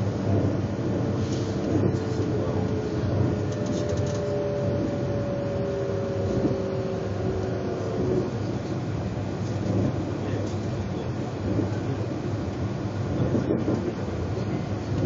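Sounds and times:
train wheels rumbling on track: 0:00.0 - 0:15.0
faint whining tones: 0:01.8 - 0:08.8.

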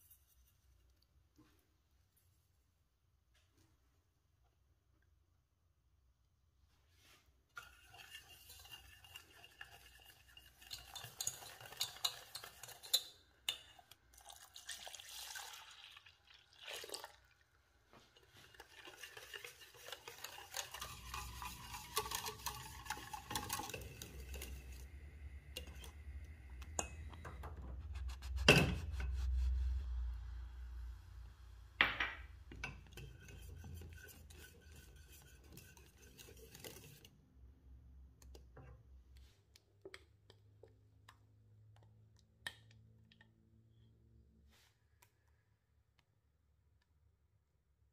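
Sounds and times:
utensil scraping a metal saucepan: 0:07.6 - 0:14.0, 0:18.1 - 0:26.0, 0:27.8 - 0:30.1, 0:32.6 - 0:37.1
low rumble: 0:26.0 - 0:31.8.

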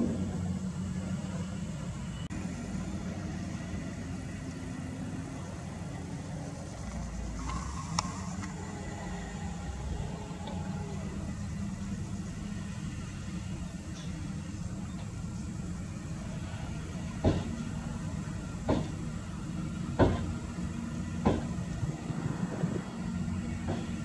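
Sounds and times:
diesel engine running: 0:00.0 - 0:24.0
sharp knocks from truck: 0:17.2 - 0:17.7, 0:18.6 - 0:19.1, 0:19.9 - 0:20.4, 0:21.2 - 0:21.7, 0:23.6 - 0:24.0.

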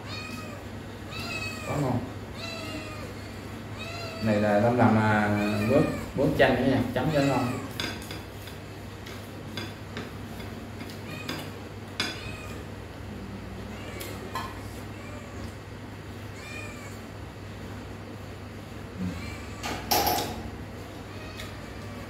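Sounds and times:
kitten meowing: 0:00.0 - 0:04.4, 0:05.2 - 0:06.4, 0:07.0 - 0:07.8, 0:12.1 - 0:12.6.

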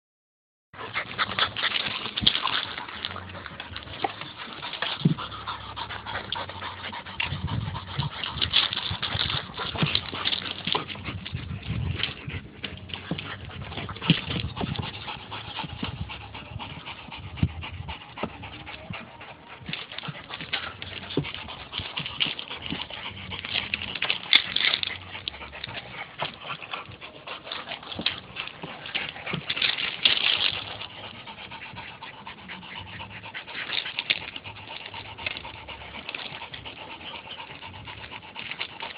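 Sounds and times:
dog panting: 0:00.8 - 0:38.9
small clicks and crunches: 0:27.4 - 0:30.9.

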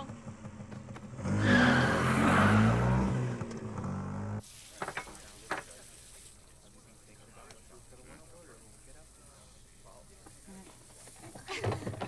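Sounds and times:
motorcycle engine revving: 0:00.0 - 0:04.4.

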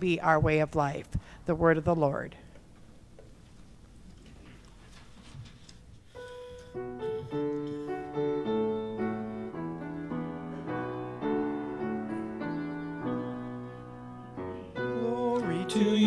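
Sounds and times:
piano chords: 0:06.2 - 0:16.0.

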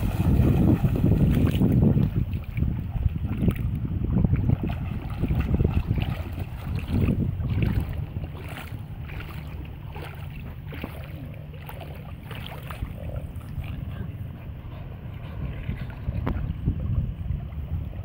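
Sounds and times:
dog splashing in water: 0:00.0 - 0:03.6, 0:04.3 - 0:13.8
wind rumble on microphone: 0:00.0 - 0:18.0.

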